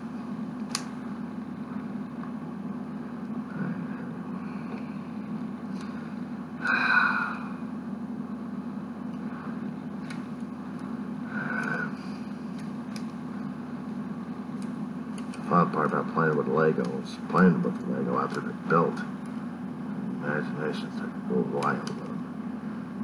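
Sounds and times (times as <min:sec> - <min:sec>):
low hum: 0:00.0 - 0:23.0.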